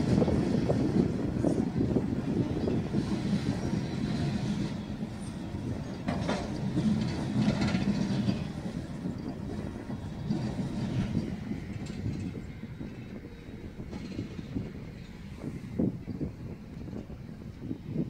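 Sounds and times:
freight train rolling past: 0:00.0 - 0:18.0
wheels clicking over rail joints: 0:02.4 - 0:15.6.

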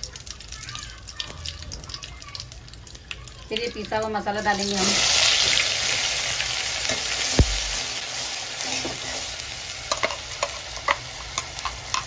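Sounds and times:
paste sizzling in hot oil: 0:03.1 - 0:12.0
dull thump: 0:07.4 - 0:07.8.

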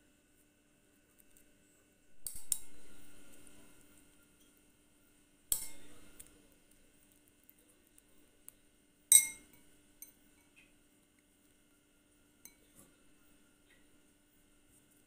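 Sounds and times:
metal spoon clinking on plate: 0:05.5 - 0:06.3, 0:09.1 - 0:10.6, 0:12.4 - 0:12.7.

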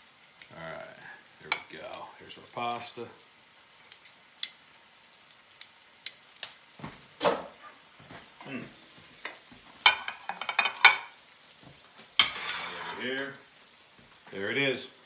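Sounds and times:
metal clanks of utensils: 0:09.9 - 0:11.1, 0:12.2 - 0:13.0.

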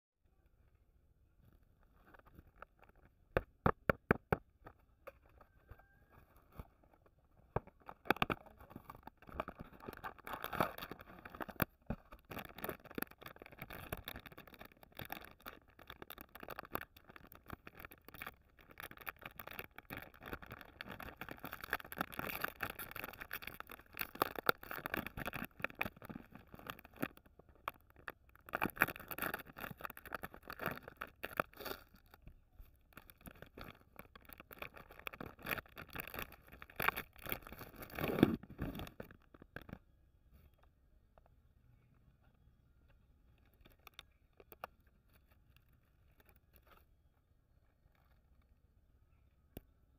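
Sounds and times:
foil packet crinkling: 0:06.6 - 0:32.2, 0:32.9 - 0:39.8.

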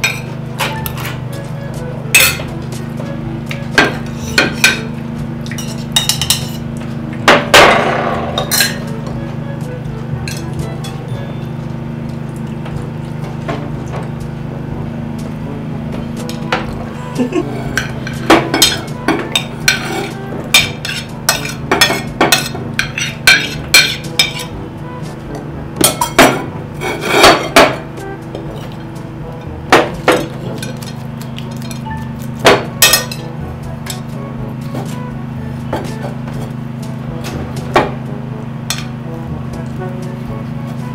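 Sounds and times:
cutlery clinking on ceramic plates: 0:00.0 - 0:01.2, 0:02.2 - 0:02.5, 0:03.8 - 0:06.7, 0:08.2 - 0:08.9, 0:17.7 - 0:24.5, 0:25.8 - 0:27.8, 0:29.8 - 0:33.3
steady low hum: 0:00.0 - 0:40.9.

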